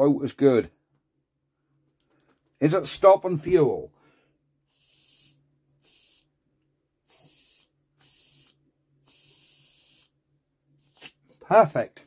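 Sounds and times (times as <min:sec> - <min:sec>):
breath puffs hissing: 0:04.0 - 0:06.3, 0:07.0 - 0:10.1.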